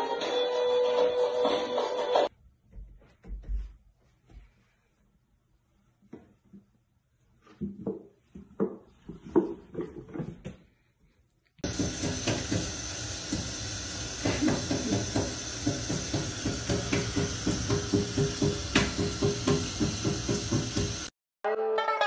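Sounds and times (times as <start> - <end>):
tap running into steel sink: 11.7 - 21.0.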